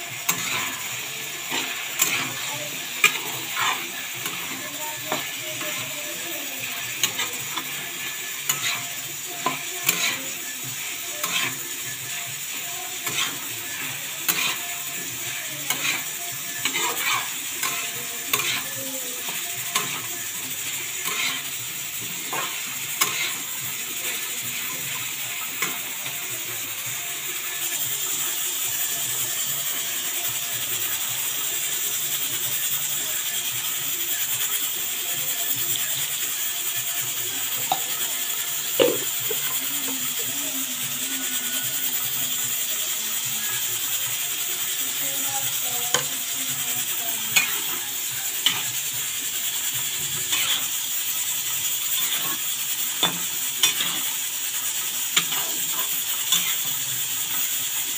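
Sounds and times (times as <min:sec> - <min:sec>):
metal spatula scraping metal pan: 0:00.0 - 0:26.3, 0:45.2 - 0:49.0, 0:49.7 - 0:50.8, 0:51.5 - 0:57.6
food sizzling in pan: 0:00.0 - 0:57.9.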